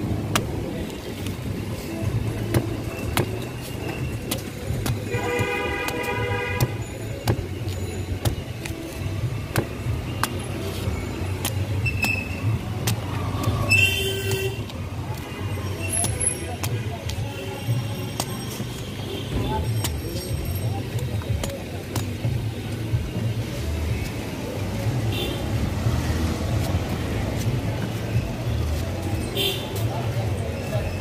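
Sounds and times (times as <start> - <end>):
street traffic rumble: 0.0 - 31.0
machete chopping fruit husks: 0.2 - 0.6, 4.2 - 7.5, 9.4 - 10.5
vehicle horn: 5.1 - 6.8.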